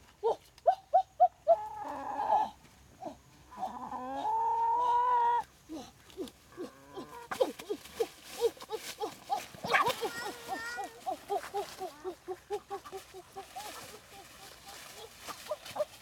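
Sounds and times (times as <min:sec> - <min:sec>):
chickens clucking: 0:09.4 - 0:16.0.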